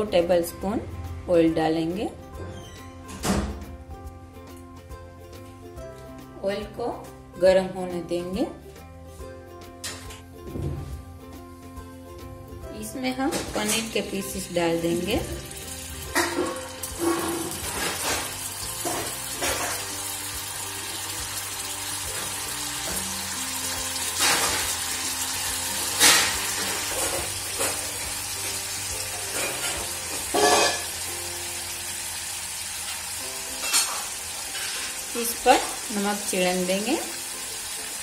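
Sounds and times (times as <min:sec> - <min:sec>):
food sizzling in hot oil: 0:11.2 - 0:38.0.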